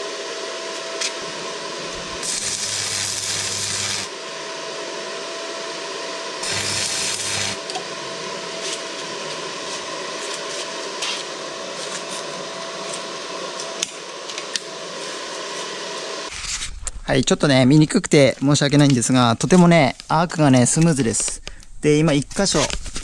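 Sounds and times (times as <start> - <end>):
steady hum with high tone: 0.0 - 19.4
welding arc crackling and buzzing: 0.7 - 4.2, 6.3 - 16.5.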